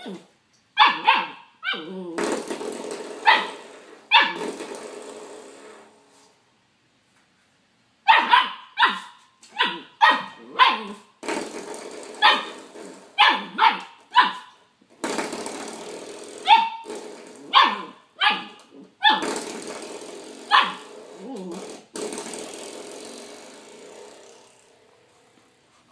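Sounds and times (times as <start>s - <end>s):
puppy barking: 0.8s - 2.0s, 3.2s - 4.4s, 8.1s - 11.1s, 12.2s - 12.6s, 13.2s - 14.6s, 16.4s - 16.9s, 17.5s - 19.3s, 20.5s - 20.9s.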